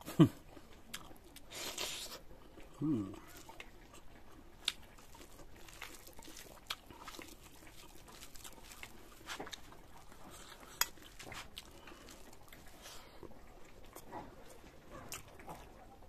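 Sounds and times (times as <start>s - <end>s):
chewing and wet smacks: 0.4s - 16.0s.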